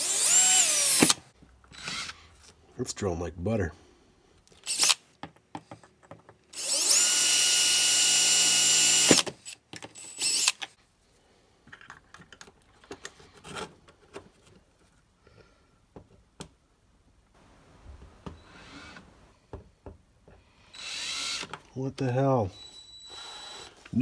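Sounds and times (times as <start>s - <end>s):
cordless drill whining: 0.0s - 2.3s, 4.6s - 5.0s, 6.5s - 10.7s, 20.7s - 21.7s, 22.5s - 24.0s.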